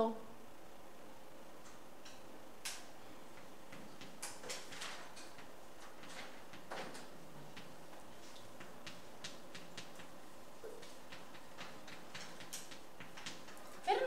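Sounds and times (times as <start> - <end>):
chalk tapping on blackboard: 7.5 - 13.6.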